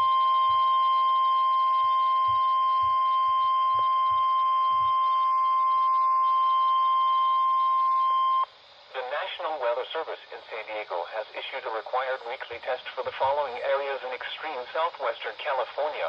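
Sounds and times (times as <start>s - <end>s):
steady high warning tone: 0.0s - 8.5s.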